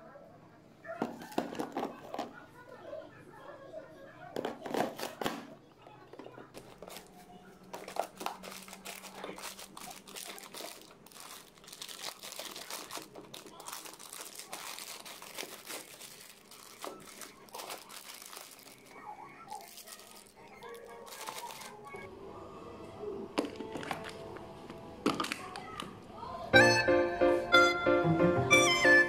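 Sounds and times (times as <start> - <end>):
plastic packaging crinkling: 6.1 - 22.1.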